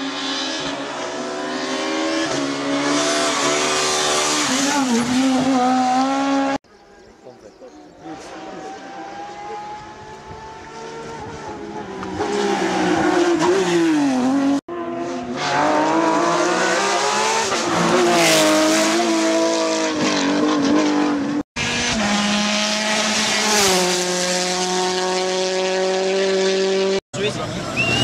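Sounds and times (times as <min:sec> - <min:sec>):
rally cars revving past: 0:08.0 - 0:27.0.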